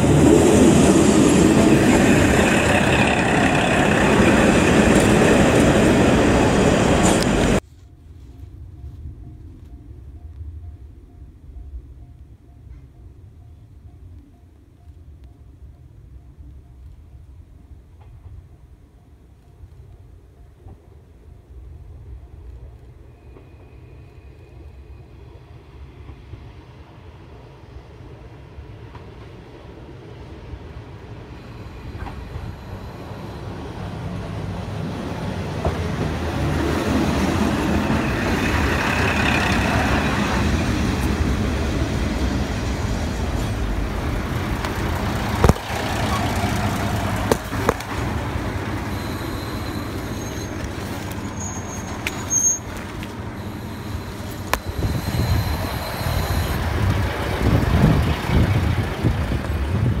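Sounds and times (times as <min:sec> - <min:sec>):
train cars clanking: 0:00.0 - 0:07.7, 0:31.6 - 0:59.8
diesel train rumbling: 0:00.0 - 1:00.0
high brake squeal: 0:31.3 - 0:33.9, 0:45.8 - 0:57.6.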